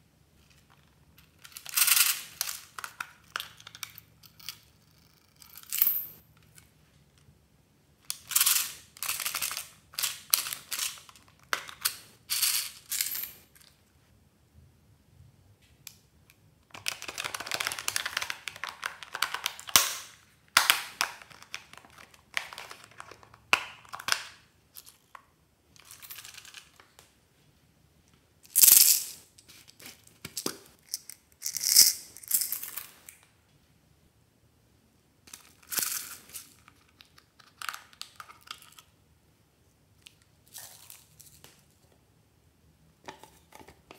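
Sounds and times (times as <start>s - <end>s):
plastic toys clicking and scraping: 8.1s - 13.0s.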